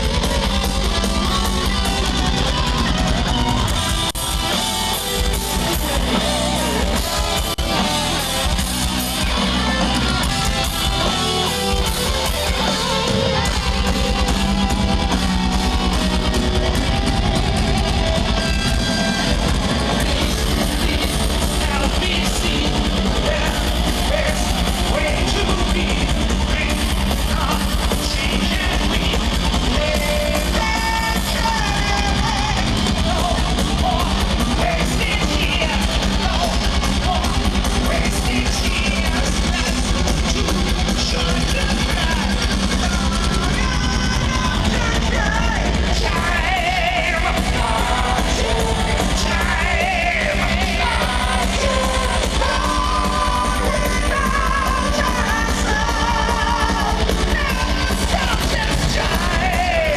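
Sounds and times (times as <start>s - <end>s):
distorted electric guitars: 0.0s - 59.9s
drum kit: 0.0s - 59.9s
person singing: 19.8s - 39.9s, 41.0s - 59.9s.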